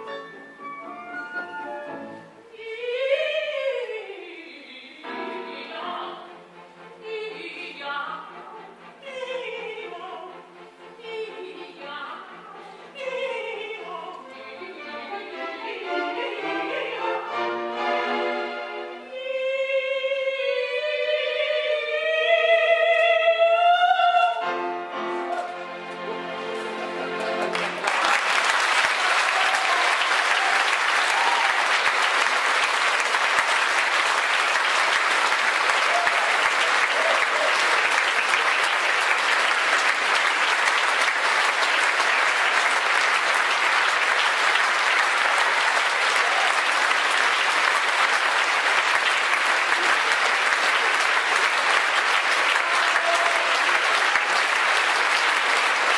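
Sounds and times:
singer with orchestra: 0:00.1 - 0:27.6
concert audience applauding: 0:26.4 - 0:55.9.

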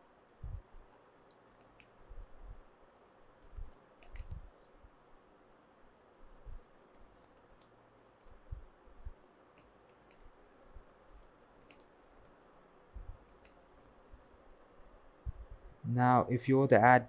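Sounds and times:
keyboard keys clicking: 0:00.8 - 0:02.0, 0:09.6 - 0:12.4.

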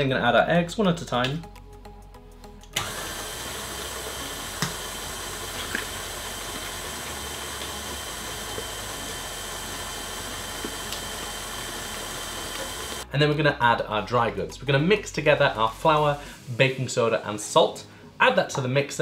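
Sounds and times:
electric stand mixer running: 0:02.8 - 0:13.0.

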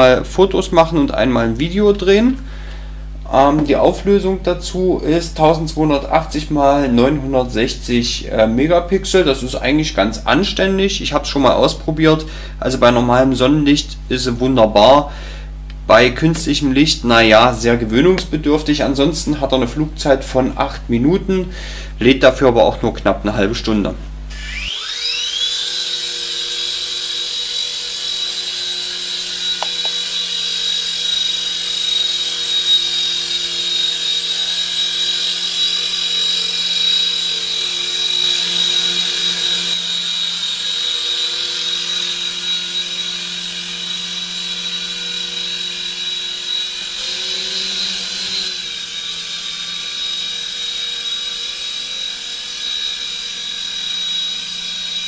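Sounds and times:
toy helicopter motor whine: 0:24.3 - 0:55.0.

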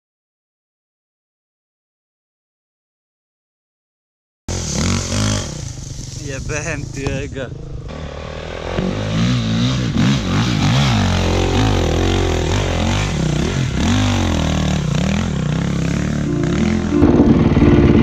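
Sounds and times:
dirt bike engine revving: 0:04.5 - 0:18.0.

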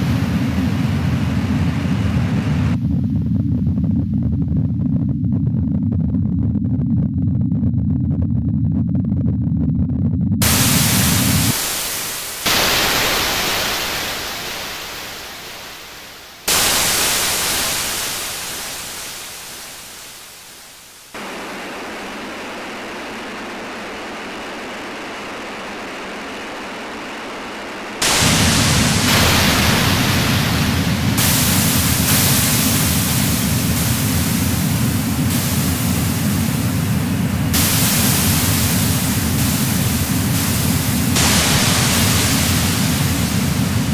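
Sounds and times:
deep rumble: 0:00.0 - 0:12.7, 0:21.2 - 0:43.9
harsh static noise music: 0:10.4 - 0:43.9.

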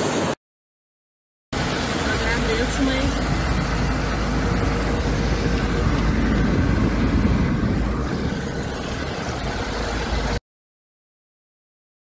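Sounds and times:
heavy rain: 0:01.5 - 0:10.4
floodwater rushing: 0:01.6 - 0:10.4.

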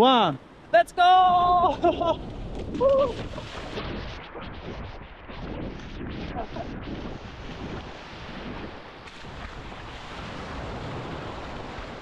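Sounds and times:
waves washing: 0:00.0 - 0:12.0
wind rumbling on microphone: 0:00.5 - 0:12.0
person crying out: 0:01.1 - 0:01.9, 0:02.7 - 0:03.2
person splashing through surf: 0:01.3 - 0:12.0.

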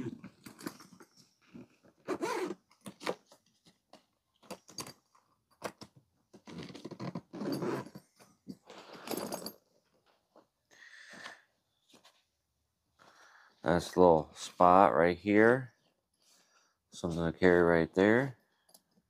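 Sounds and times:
zippers unzipping: 0:02.0 - 0:03.2, 0:06.4 - 0:08.0.

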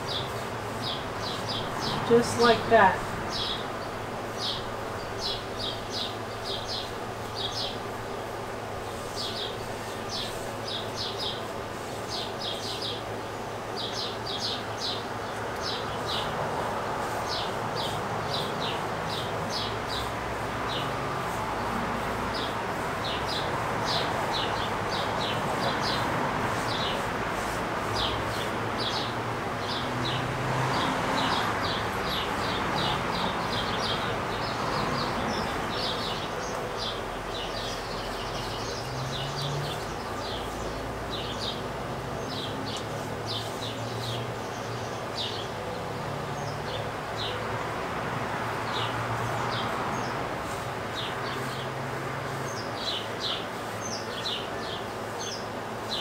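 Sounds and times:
small birds chirping: 0:00.0 - 0:21.4, 0:22.0 - 0:45.7, 0:48.7 - 0:56.0
steady background hiss: 0:00.0 - 0:29.8.

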